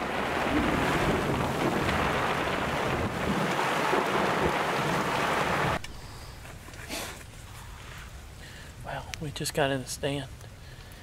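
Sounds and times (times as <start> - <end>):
heavy rain on vehicle roof: 0.0 - 5.8.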